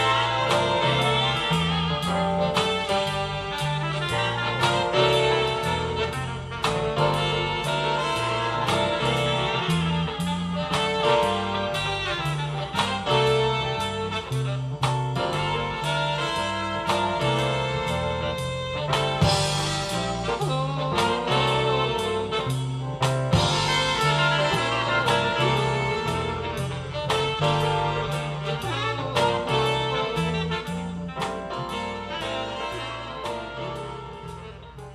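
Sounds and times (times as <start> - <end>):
jazz music through speakers: 0.0 - 34.9.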